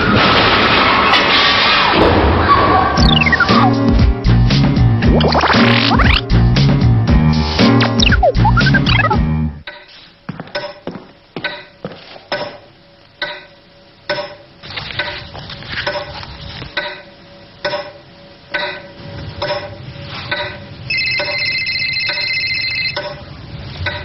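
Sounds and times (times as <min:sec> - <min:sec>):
mobile phone ringing: 0:20.9 - 0:23.1.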